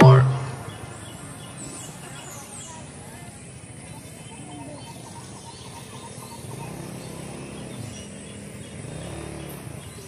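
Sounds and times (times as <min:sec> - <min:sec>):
road and traffic noise: 0:00.0 - 0:10.0
motorcycle engine at low revs: 0:05.5 - 0:10.0.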